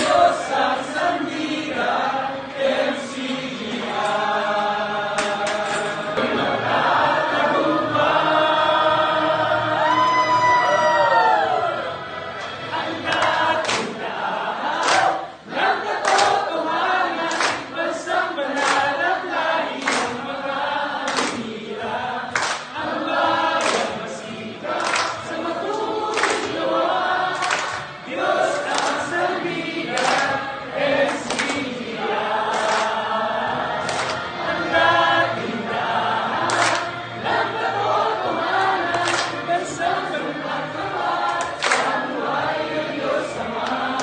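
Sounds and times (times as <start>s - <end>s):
group singing together: 0.0s - 44.0s
sharp hand claps: 5.2s - 5.9s, 13.1s - 14.0s, 14.8s - 15.2s, 16.0s - 16.5s, 17.2s - 17.7s, 18.5s - 19.0s, 19.8s - 20.2s, 21.1s - 21.5s, 22.4s - 22.8s, 23.6s - 24.0s, 24.8s - 26.6s, 27.4s - 27.9s, 28.7s - 29.0s, 29.9s - 30.4s, 31.0s - 31.7s, 32.5s - 33.0s, 33.8s - 34.3s, 36.5s - 36.9s, 38.9s - 39.4s, 41.3s - 42.0s.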